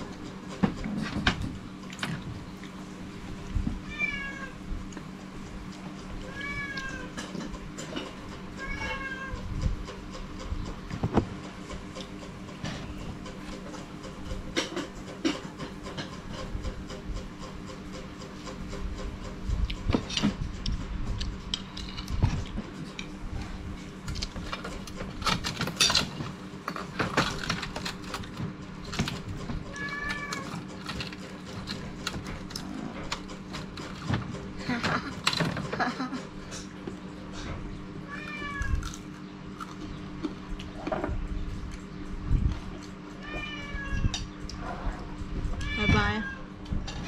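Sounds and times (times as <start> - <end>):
steady low hum: 0.0 - 47.0
cat meowing: 3.8 - 4.6, 6.2 - 7.2, 8.6 - 9.4, 29.7 - 30.5, 38.0 - 38.8, 43.2 - 44.2, 45.6 - 46.5.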